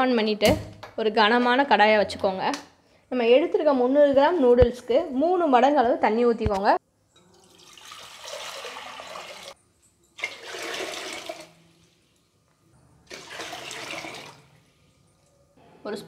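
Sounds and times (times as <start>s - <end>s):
water pouring into metal pot: 7.2s - 9.6s, 10.2s - 11.6s, 13.1s - 14.7s.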